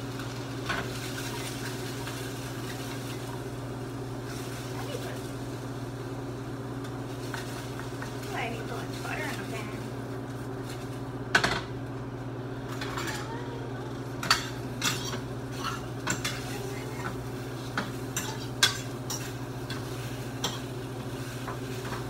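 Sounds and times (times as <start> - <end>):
faint sizzle: 0.0 - 22.0
steady hum: 0.0 - 22.0
metal utensil scraping a skillet: 18.2 - 20.7.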